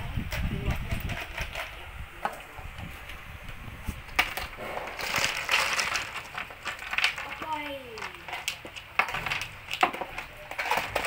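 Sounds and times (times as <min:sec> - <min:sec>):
plastic bricks clicking: 0:04.1 - 0:11.0
bricks clattering onto plastic tray: 0:04.2 - 0:11.0.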